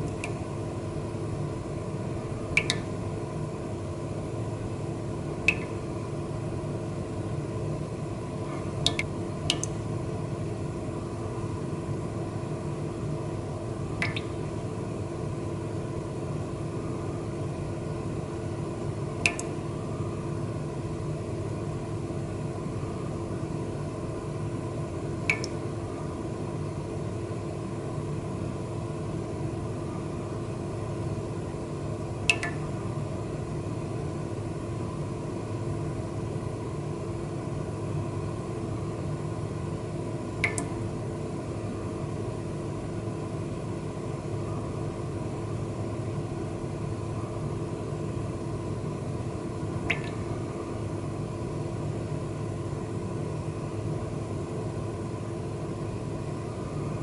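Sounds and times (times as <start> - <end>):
steady low hum with held tones: 0.0 - 57.0
sharp clicks: 2.6 - 2.9, 5.5 - 5.7, 8.8 - 9.8, 14.0 - 14.3, 19.2 - 19.5, 25.3 - 25.6, 40.4 - 40.7.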